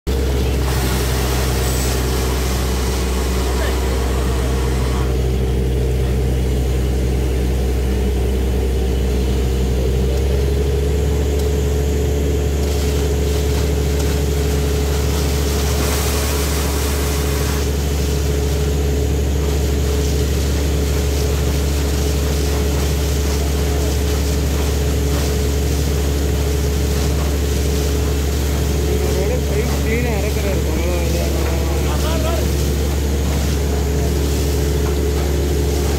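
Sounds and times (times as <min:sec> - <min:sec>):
splashing hiss of air and water: 0:00.1 - 0:05.3, 0:12.4 - 0:35.9
drilling rig engine drone: 0:00.1 - 0:35.9.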